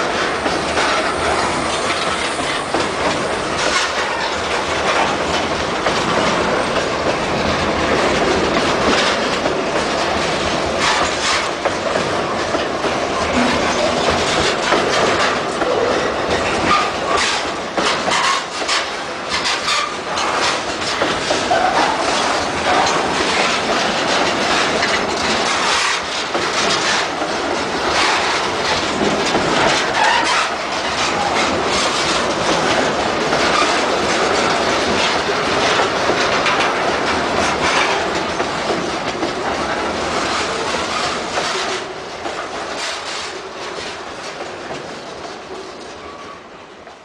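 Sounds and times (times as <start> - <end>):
train wheels clattering on rails: 0.0 - 47.0.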